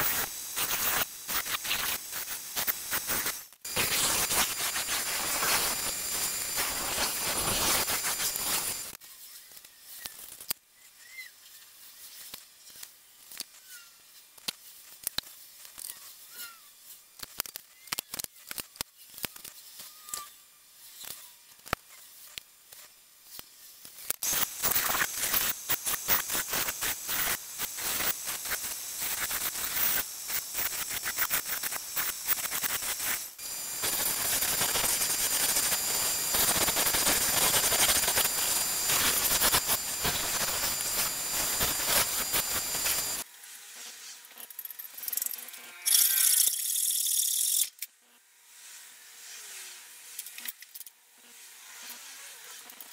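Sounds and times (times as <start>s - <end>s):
sanding disc whining: 24.2s - 43.2s.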